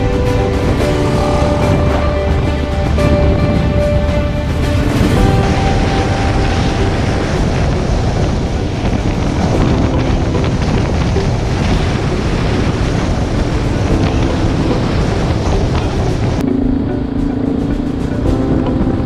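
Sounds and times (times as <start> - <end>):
motorcycle engine running: 0.0 - 12.1
wind buffeting microphone: 0.0 - 19.0.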